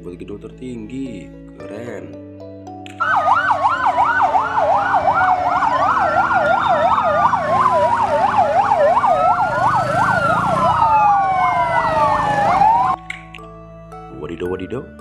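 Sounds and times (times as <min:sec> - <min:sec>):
wailing siren: 0:03.0 - 0:13.0
yelping siren: 0:03.0 - 0:13.0.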